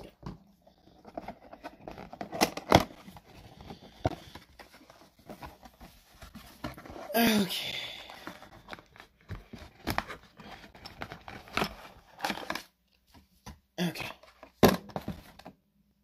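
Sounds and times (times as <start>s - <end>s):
cardboard rustling and scraping: 0.0s - 7.4s, 8.0s - 13.3s.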